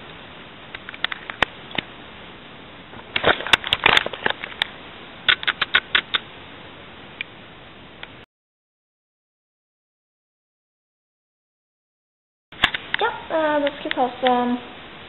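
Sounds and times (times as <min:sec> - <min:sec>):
low hiss: 0:00.0 - 0:08.3, 0:12.6 - 0:15.0.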